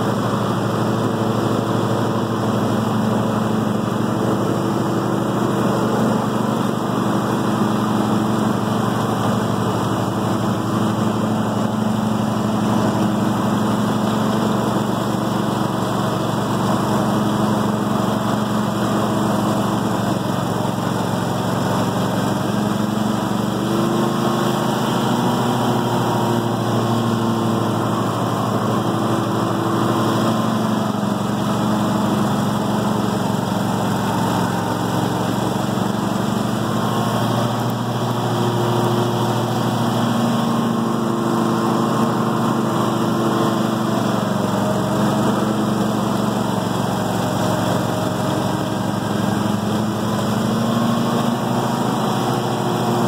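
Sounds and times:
garden tractor engine under load: 0.0s - 53.0s.

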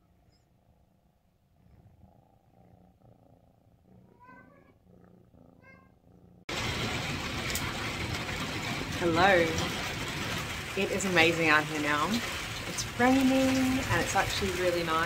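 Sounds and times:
cat purring: 0.0s - 6.6s.

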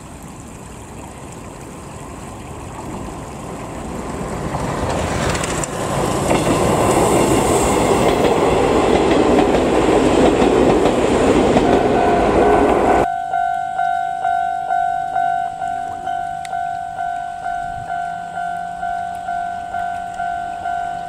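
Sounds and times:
electric train passing: 3.3s - 21.0s
train wheels clacking over rail joints: 4.5s - 12.0s
level crossing warning bell: 11.6s - 21.0s.

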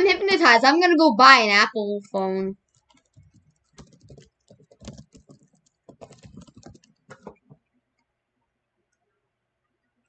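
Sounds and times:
computer keyboard typing: 2.7s - 7.6s.

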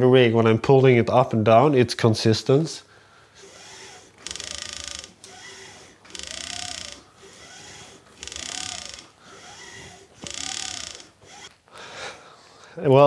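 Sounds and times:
support line zipping whir: 3.4s - 11.6s.

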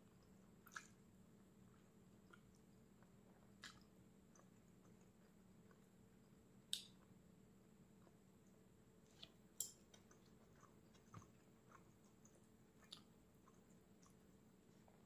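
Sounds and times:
person chewing food: 0.0s - 7.2s, 7.9s - 15.0s.

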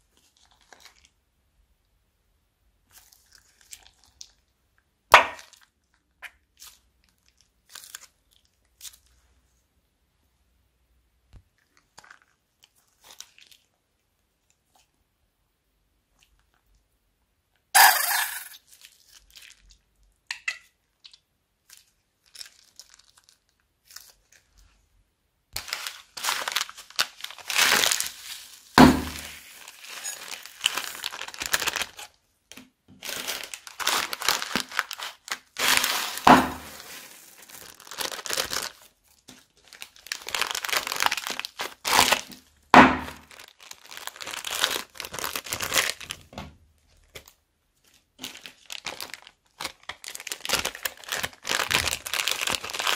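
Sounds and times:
plastic bags crinkling: 0.2s - 1.2s, 5.2s - 9.1s, 11.6s - 13.7s, 21.6s - 24.5s, 25.6s - 52.9s.

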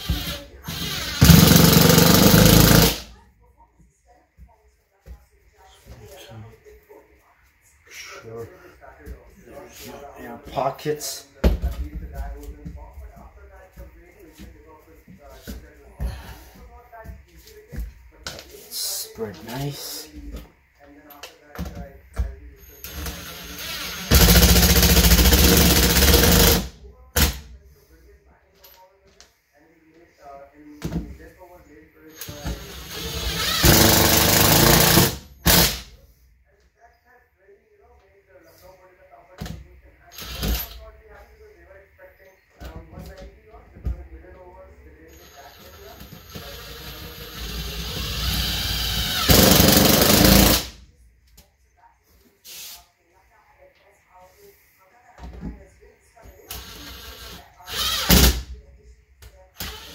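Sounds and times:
cordless drill driving screw: 0.0s - 3.0s, 32.6s - 35.8s, 46.2s - 50.6s, 56.5s - 58.3s
impact driver hammering a screw: 0.1s - 3.0s, 33.0s - 35.8s.

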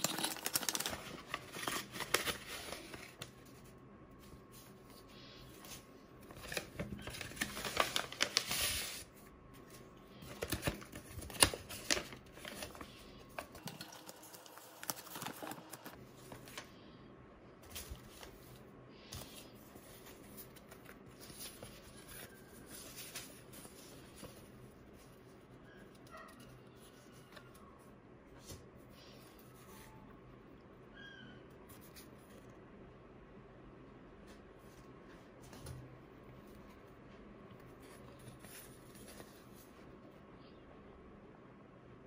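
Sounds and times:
paper and card rustling: 0.0s - 16.7s, 17.6s - 27.8s, 37.6s - 39.9s.

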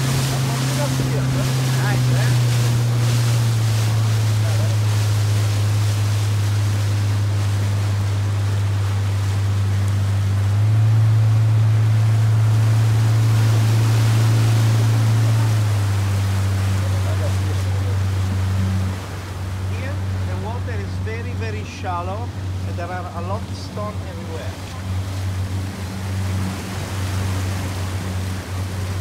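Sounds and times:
boat motor droning: 0.0s - 29.0s
wind: 0.0s - 29.0s.

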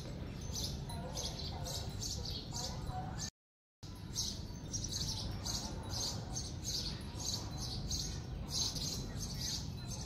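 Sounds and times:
small birds chirping: 0.0s - 3.3s, 3.9s - 10.0s.

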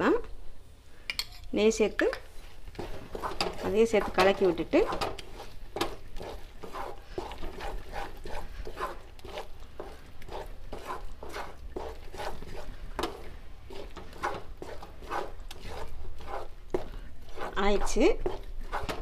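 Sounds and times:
spatula scraping dough in a pan: 2.3s - 19.0s.

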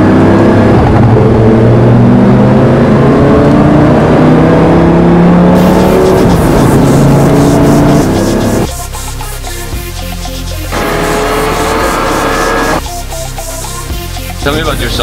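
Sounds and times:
sports car engine accelerating: 0.0s - 8.7s, 10.7s - 12.9s.

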